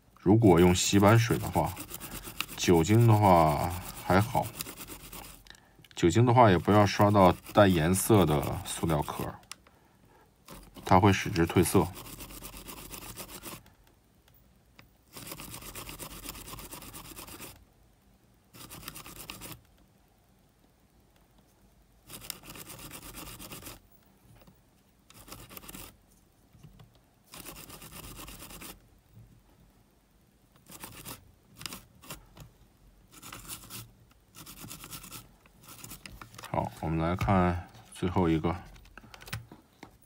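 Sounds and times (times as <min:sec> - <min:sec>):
toothbrush scrubbing: 0:00.6 - 0:05.4, 0:06.5 - 0:09.3, 0:11.4 - 0:13.6, 0:34.4 - 0:36.0.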